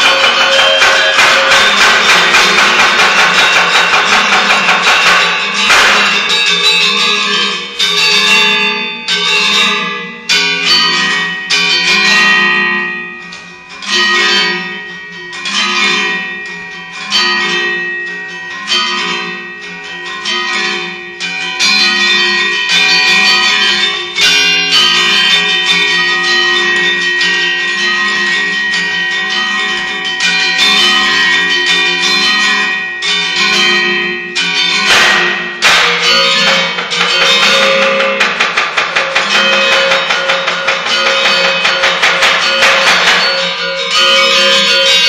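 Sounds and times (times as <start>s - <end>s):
metallophones interlocking melody: 0.0s - 45.0s.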